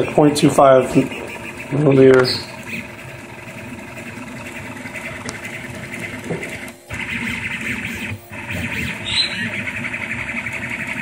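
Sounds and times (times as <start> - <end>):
three-d printer stepper motors: 0.0 - 11.0.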